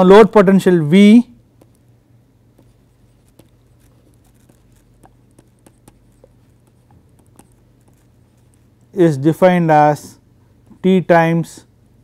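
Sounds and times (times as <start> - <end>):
steady low hum: 0.0 - 12.0
stylus tapping on tablet screen: 1.5 - 1.9, 2.5 - 8.7.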